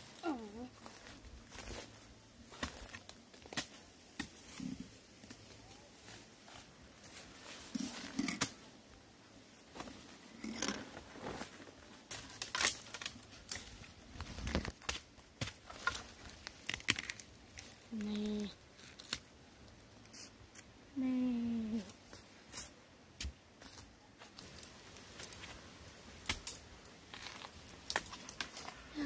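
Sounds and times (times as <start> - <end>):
dry leaves and twigs rustling: 0.0 - 20.7, 21.5 - 29.0
twigs snapping: 12.1 - 18.2, 18.8 - 19.8, 26.2 - 28.8.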